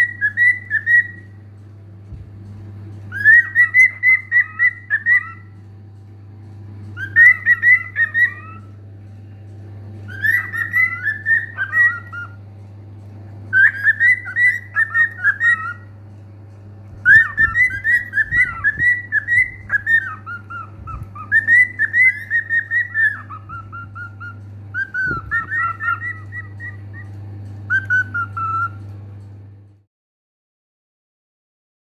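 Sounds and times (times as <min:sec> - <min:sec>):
cockatiel whistling a warbling song: 0:00.0 - 0:01.4, 0:03.1 - 0:05.6, 0:07.0 - 0:08.8, 0:10.1 - 0:12.4, 0:13.5 - 0:15.9, 0:17.0 - 0:28.9
steady low hum: 0:00.0 - 0:29.9.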